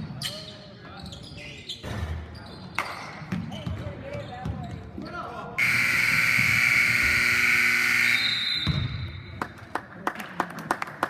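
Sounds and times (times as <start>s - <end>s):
scoreboard buzzer: 5.6s - 8.3s.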